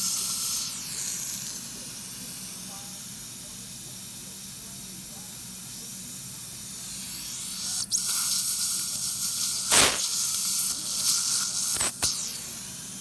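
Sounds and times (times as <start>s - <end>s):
suction tip hissing and slurping: 0.0s - 2.3s, 6.7s - 13.0s
sharp sucking clicks: 9.7s - 10.1s.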